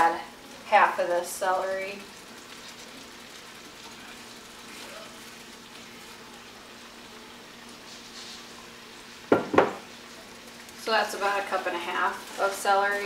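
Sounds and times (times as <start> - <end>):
vegetables sizzling in butter: 0.0 - 13.0.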